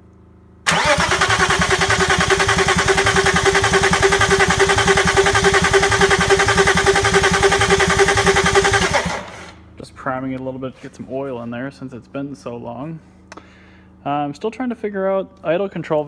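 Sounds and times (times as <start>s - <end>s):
engine cranking without firing: 0.7s - 9.6s.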